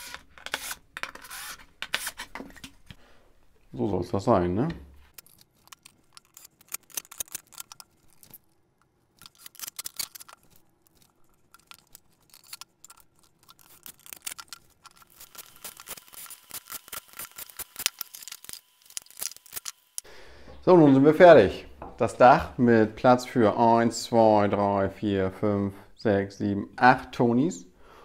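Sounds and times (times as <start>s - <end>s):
wooden parts clicking and knocking: 5.1s - 8.5s, 9.1s - 15.9s.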